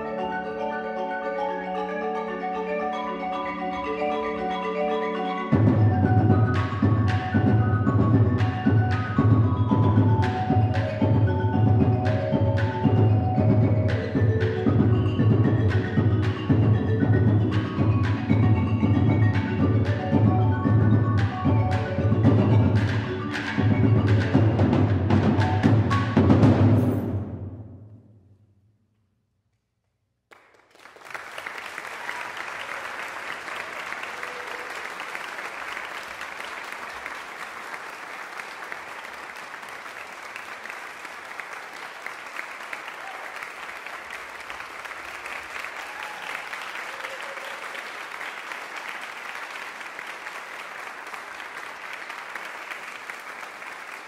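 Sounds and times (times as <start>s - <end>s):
audience applauding: 30.3s - 54.0s.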